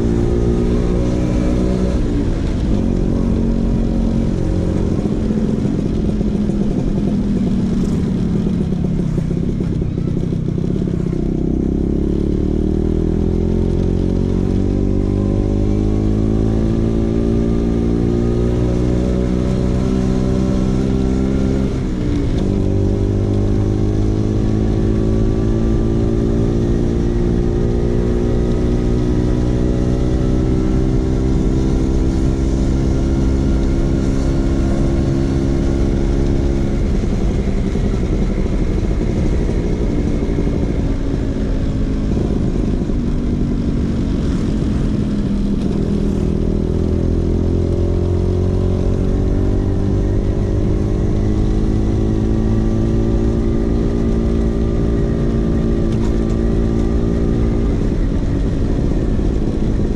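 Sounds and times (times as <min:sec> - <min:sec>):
scooter engine running: 0:01.9 - 0:12.8, 0:30.0 - 0:59.9.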